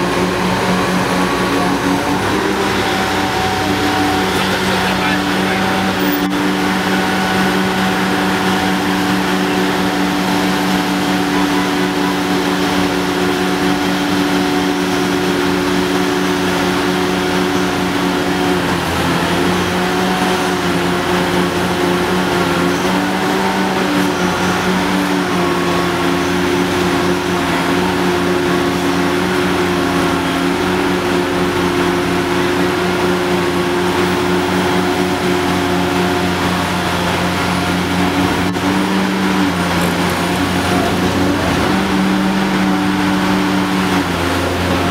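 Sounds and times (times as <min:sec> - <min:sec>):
excavator diesel engine humming: 0:00.0 - 0:44.9.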